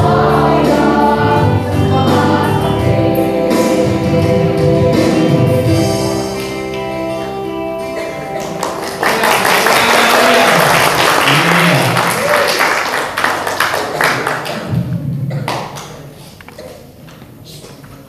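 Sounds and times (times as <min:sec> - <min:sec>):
choir singing a chord: 0:00.0 - 0:07.0
audience applause: 0:08.3 - 0:14.7.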